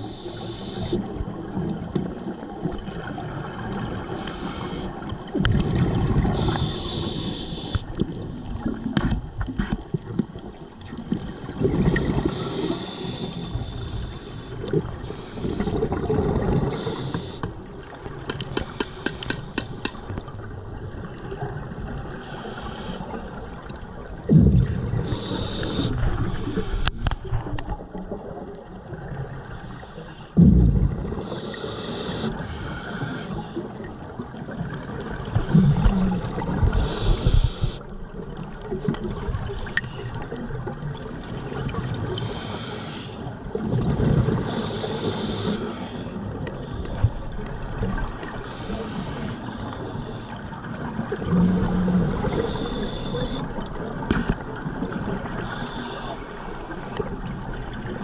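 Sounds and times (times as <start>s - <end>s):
hissing regulator inhalations: 0.0s - 1.2s, 4.1s - 5.1s, 6.4s - 8.0s, 12.2s - 16.0s, 16.7s - 17.6s, 18.4s - 20.0s, 22.2s - 23.3s, 25.0s - 27.2s, 31.2s - 33.7s, 35.4s - 37.9s, 42.2s - 43.3s, 44.4s - 47.1s, 48.4s - 50.4s, 51.4s - 53.5s, 55.4s - 57.0s
faint clicks: 18.2s - 20.3s
bubbling exhalations: 35.4s - 37.3s.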